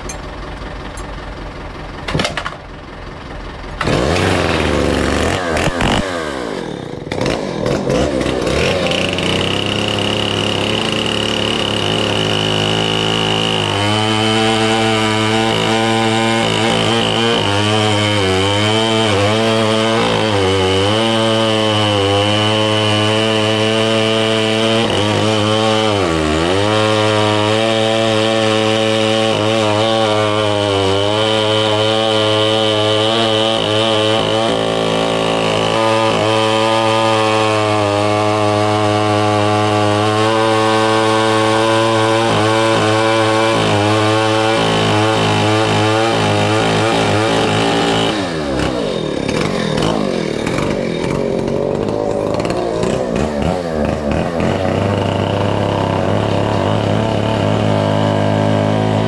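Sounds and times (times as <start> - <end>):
chainsaw cutting logs: 0.0 - 1.2, 1.9 - 59.0.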